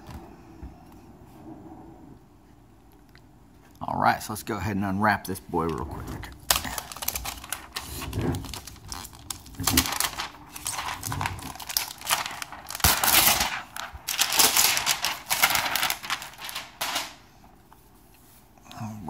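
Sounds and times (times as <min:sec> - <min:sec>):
plastic wrapper crinkling: 0:05.6 - 0:17.3.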